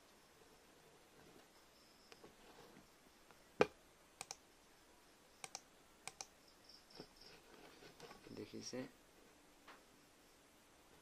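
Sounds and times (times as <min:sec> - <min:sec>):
computer mouse clicks: 0:03.3 - 0:04.4, 0:05.4 - 0:06.3.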